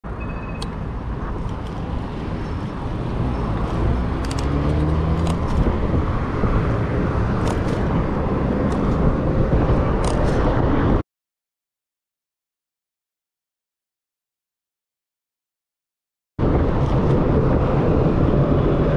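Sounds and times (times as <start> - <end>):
vehicles passing: 0.0 - 11.0, 16.4 - 18.9
engine tone rising: 2.1 - 9.3
sharp clicks: 3.6 - 5.7.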